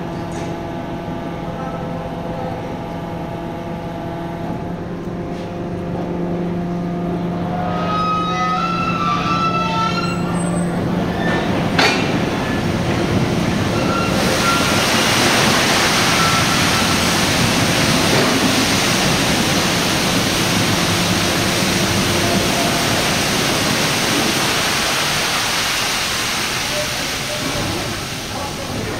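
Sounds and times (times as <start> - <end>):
heavy machinery whining: 5.8 - 28.9
loud rushing noise: 10.8 - 28.9.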